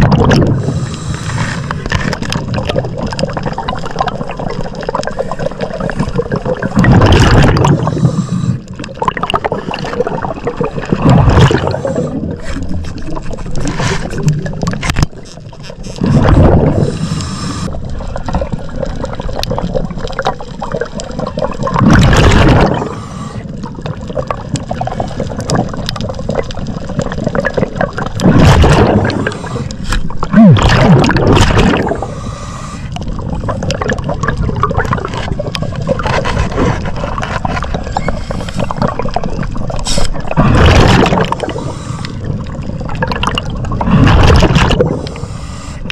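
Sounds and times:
bubbles gurgling underwater: 0.0s - 1.0s, 1.7s - 32.3s, 33.0s - 45.3s
underwater hiss: 0.6s - 1.8s, 7.8s - 8.7s, 11.6s - 12.7s, 16.7s - 17.8s, 22.6s - 23.5s, 29.0s - 30.0s, 31.8s - 33.0s, 39.8s - 40.2s, 41.2s - 42.3s, 44.9s - 45.9s.

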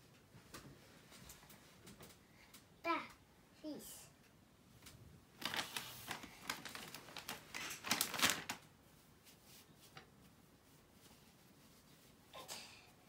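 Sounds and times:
plastic pack crinkling: 5.4s - 8.7s.

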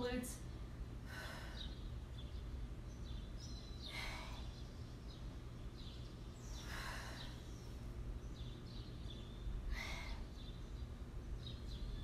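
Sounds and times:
steady low hum: 0.0s - 12.0s
woman breathing: 0.7s - 2.1s, 3.8s - 4.7s, 6.4s - 8.0s, 9.6s - 10.5s.

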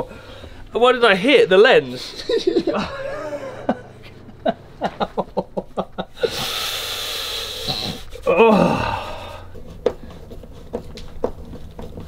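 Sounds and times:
man laughing breathily: 2.0s - 9.4s
steady hiss: 4.7s - 8.3s.

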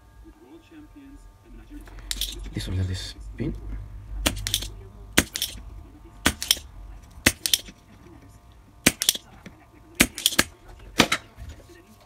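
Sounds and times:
desoldering pump snapping: 4.2s - 7.8s, 8.8s - 9.4s, 10.0s - 11.2s.

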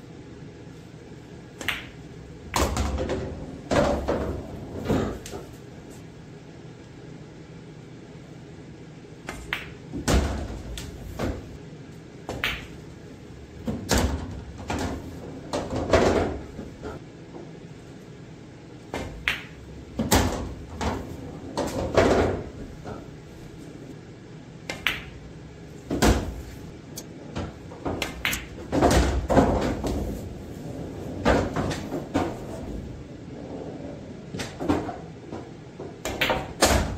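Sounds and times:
balls thudding inside table: 1.6s - 5.6s, 9.3s - 11.5s, 12.3s - 12.8s, 13.6s - 17.0s, 18.9s - 23.1s, 24.7s - 25.2s, 27.3s - 30.3s, 34.4s - 36.9s
pool balls clacking: 1.6s - 5.6s, 9.2s - 11.6s, 12.2s - 17.5s, 18.9s - 23.1s, 24.7s - 26.6s, 27.2s - 36.9s.

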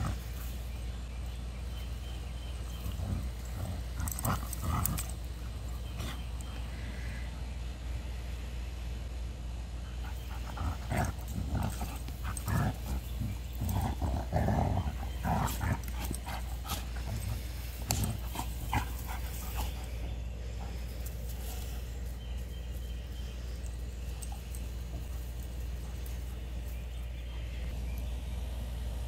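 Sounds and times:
dogs growling while play-fighting: 0.0s - 0.7s, 1.8s - 6.8s, 9.9s - 22.4s, 23.0s - 27.7s.

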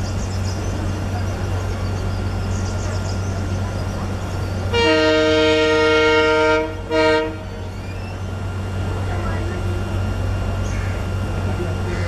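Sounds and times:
steady low hum: 0.0s - 12.0s
locomotive horn blasts: 4.7s - 7.7s.

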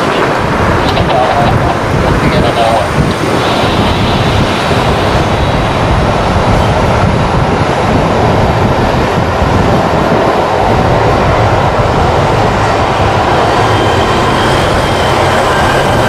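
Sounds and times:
jet engines running: 0.0s - 16.0s.

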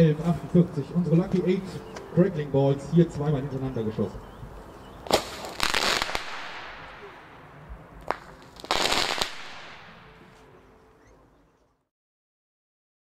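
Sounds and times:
firework launch bang: 5.1s - 7.2s
firework crackling burst: 5.1s - 7.4s, 8.0s - 9.9s.

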